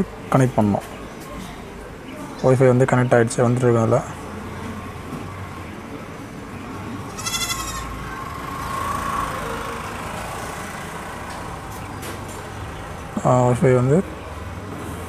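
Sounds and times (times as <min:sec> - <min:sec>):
outdoor background hum: 0:00.0 - 0:15.0
wavering high-pitched bleat: 0:07.1 - 0:08.0.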